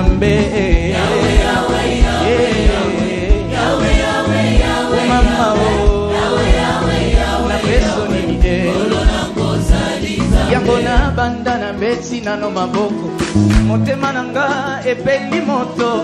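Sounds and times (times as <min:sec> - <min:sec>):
band with steady drum beat: 0:00.0 - 0:11.2
voices singing together: 0:00.1 - 0:11.6.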